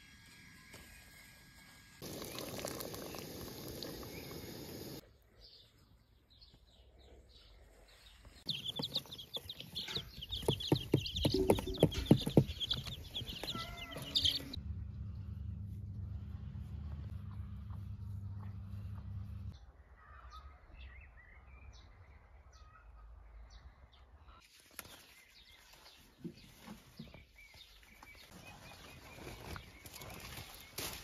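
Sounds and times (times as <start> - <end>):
baby chicks peeping: 8.4 - 14.6
sharp knocks and taps: 8.7 - 13.6
low hum: 14.0 - 19.6.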